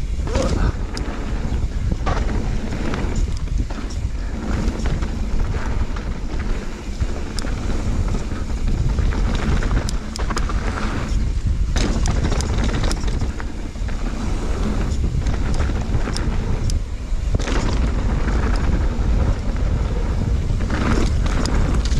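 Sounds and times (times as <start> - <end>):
bike clicks and rattles: 0.0 - 21.9
tyres rumbling over dirt trail: 0.0 - 21.9
wind buffeting microphone: 0.0 - 21.9.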